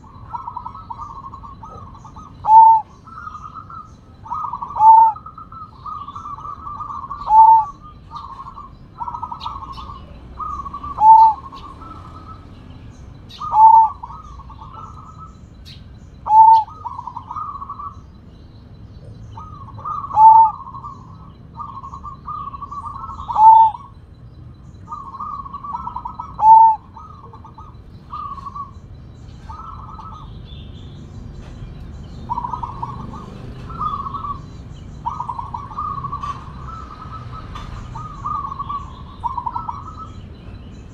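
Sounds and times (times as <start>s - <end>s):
dove cooing: 0.0s - 40.9s.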